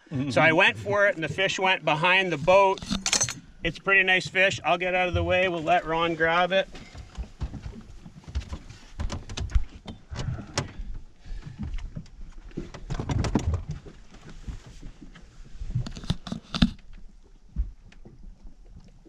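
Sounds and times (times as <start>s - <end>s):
gear knocking on boat deck: 6.9s - 10.8s.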